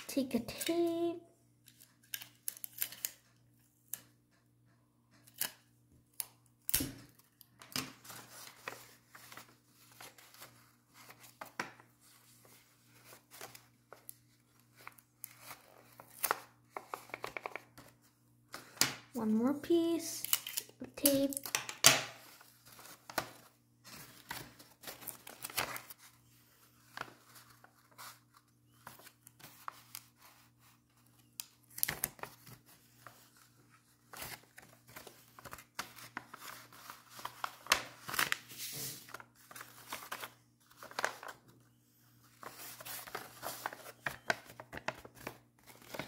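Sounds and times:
paper rustling and crinkling: 7.1s - 18.8s, 22.2s - 46.0s.

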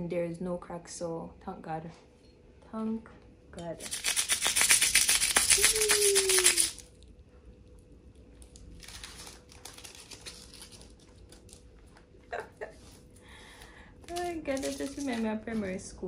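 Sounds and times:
foam packing crackling: 8.6s - 11.6s, 14.1s - 15.3s.

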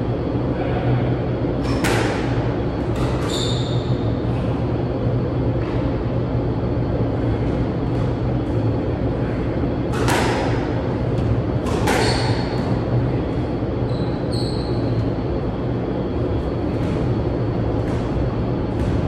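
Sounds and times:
steady low hum: 0.0s - 19.0s
shoe squeak: 3.0s - 4.1s, 11.8s - 12.7s, 13.8s - 15.1s
squash ball cracking echoing: 9.8s - 13.0s.

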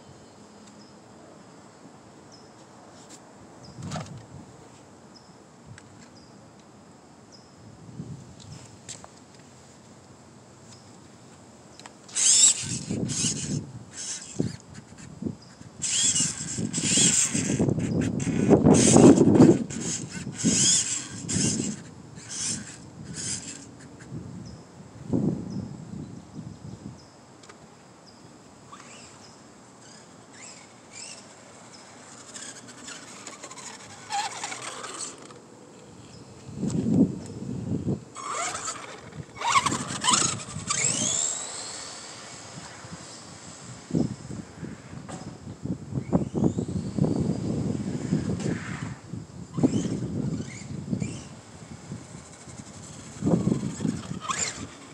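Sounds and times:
electric motor and gears whining: 12.1s - 23.9s, 28.7s - 54.9s.

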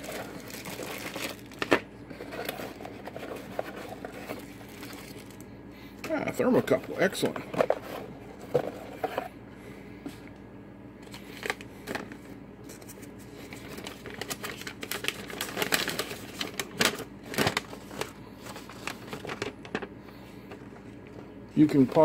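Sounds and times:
paper crackling and rustling: 0.0s - 5.4s, 11.0s - 22.0s.

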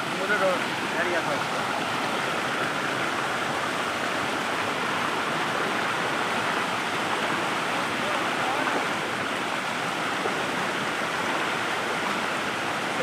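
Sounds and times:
fast-flowing stream: 0.0s - 13.0s.

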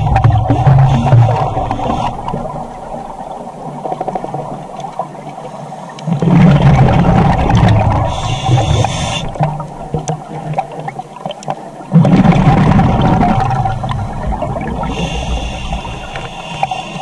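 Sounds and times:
exhaled bubbles underwater: 0.0s - 17.0s
diver inhaling through regulator: 8.0s - 9.4s, 14.8s - 17.0s.

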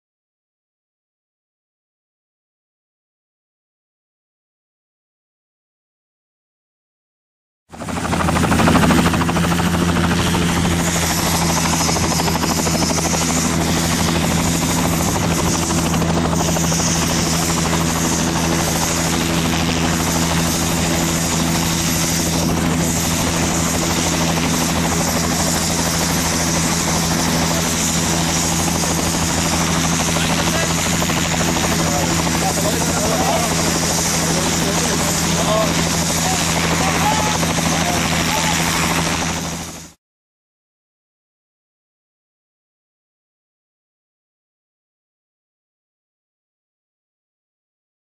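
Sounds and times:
helicopter drone: 7.7s - 40.0s.

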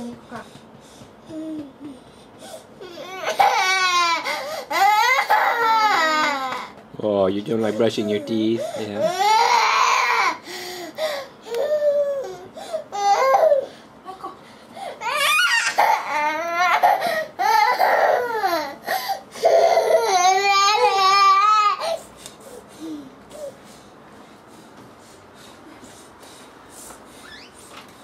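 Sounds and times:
toddler crying: 2.8s - 6.7s, 7.7s - 10.4s, 11.5s - 13.7s, 15.0s - 22.0s.

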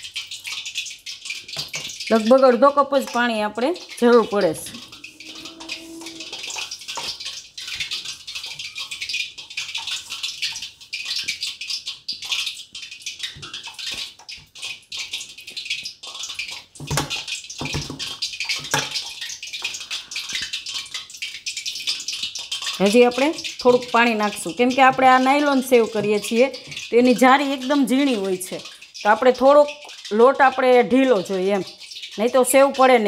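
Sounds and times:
hands squelching wet dough: 7.6s - 33.0s.

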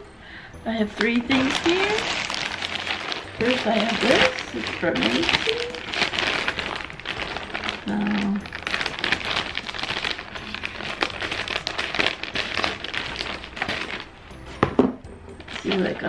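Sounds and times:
plastic bag crinkling: 1.0s - 14.5s, 15.4s - 16.0s
scissors cutting plastic: 1.3s - 14.1s.

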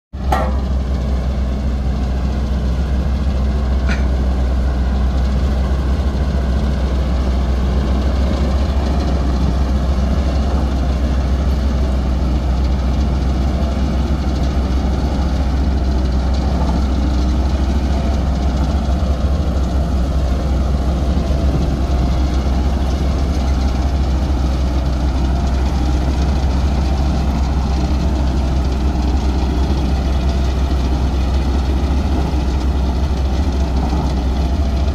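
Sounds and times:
diesel compactor engine droning: 0.1s - 34.9s
road rollers running: 0.1s - 34.9s.

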